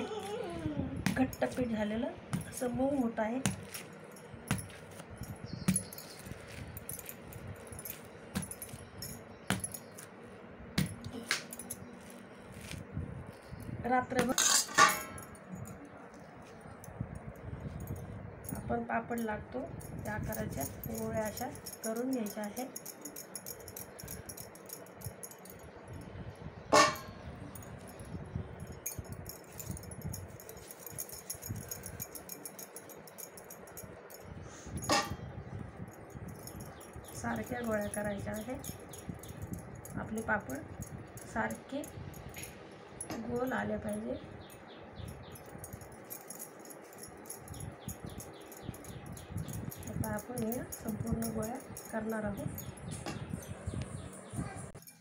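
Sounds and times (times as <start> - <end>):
bangles clinking: 1.0 - 55.0
steel pot clang: 14.3 - 15.3, 26.7 - 27.2, 34.8 - 35.2.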